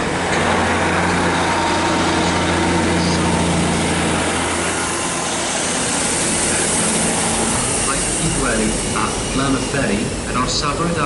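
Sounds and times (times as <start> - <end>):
train diesel engine drone: 0.0 - 11.0.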